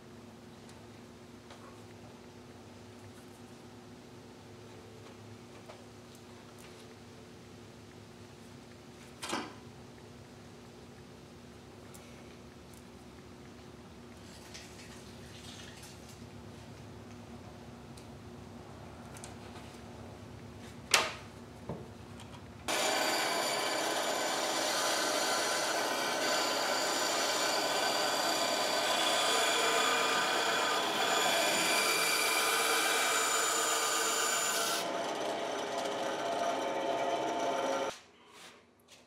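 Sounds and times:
band saw cutting wood: 22.7s - 37.9s.

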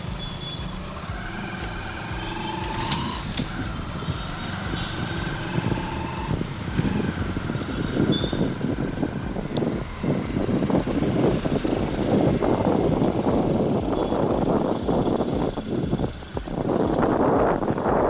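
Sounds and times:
vehicle engines passing: 0.0s - 18.0s.

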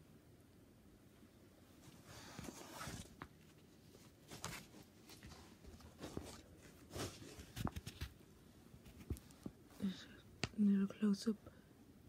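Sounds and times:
paper and plastic rustling: 1.8s - 8.2s.

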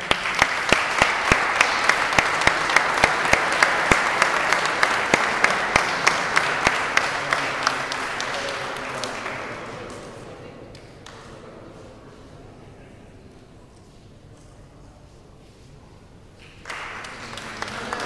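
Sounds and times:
person clapping close by: 0.0s - 10.0s
audience applauding: 0.0s - 10.3s, 16.4s - 18.0s.

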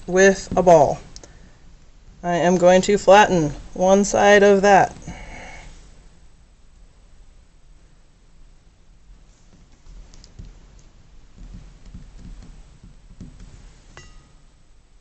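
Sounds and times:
hands pressing clay on desk: 9.4s - 14.0s.

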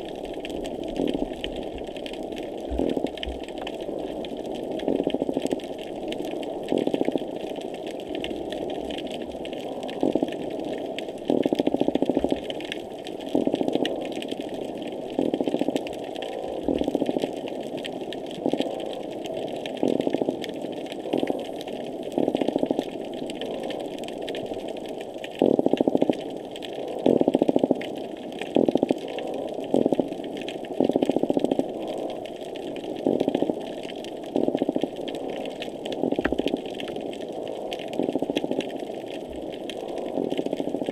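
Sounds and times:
steady underwater background: 0.0s - 40.9s.

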